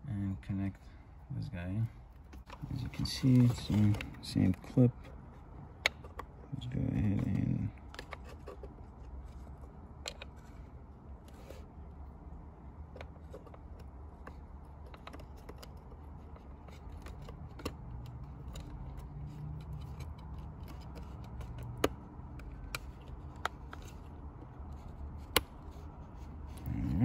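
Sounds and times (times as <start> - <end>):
low steady hum: 0.0 - 27.0
plastic connector clicks and rattles: 7.2 - 8.6, 10.0 - 10.4, 12.9 - 24.1.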